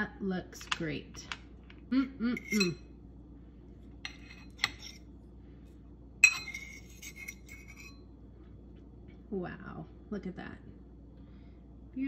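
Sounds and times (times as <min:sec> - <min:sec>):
metal fork clinking on plate: 0:02.4 - 0:02.8, 0:04.1 - 0:05.0, 0:06.2 - 0:08.0.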